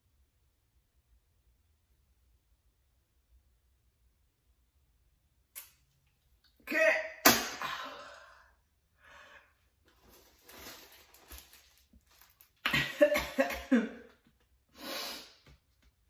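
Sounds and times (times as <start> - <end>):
woman coughing: 12.7 - 14.0
woman laughing: 12.7 - 14.1.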